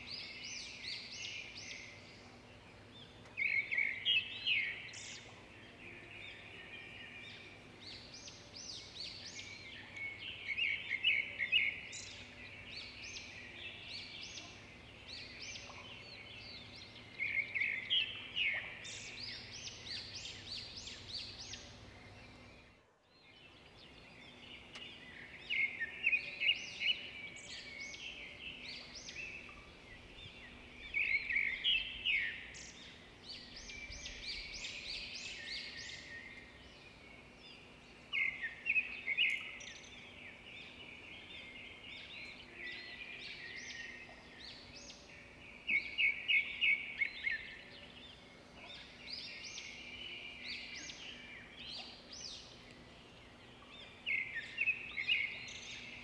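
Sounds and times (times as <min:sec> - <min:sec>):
birds chirping and calling: 0:23.5 - 0:56.0.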